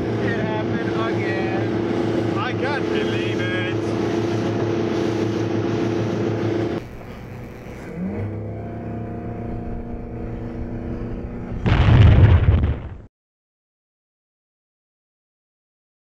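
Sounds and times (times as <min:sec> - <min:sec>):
motorboat engine running: 0:00.0 - 0:12.8
loud rough rushing noise: 0:11.3 - 0:13.1.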